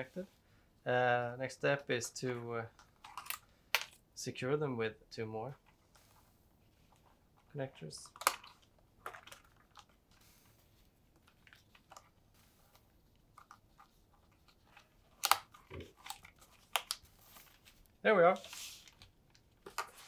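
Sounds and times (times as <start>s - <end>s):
plastic connectors clicking: 15.2s - 17.0s.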